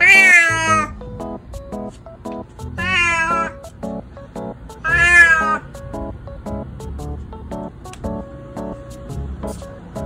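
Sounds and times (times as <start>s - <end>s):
cat meowing loudly: 0.0s - 1.0s, 2.8s - 3.6s, 4.8s - 5.7s
plucked background music: 0.0s - 10.0s.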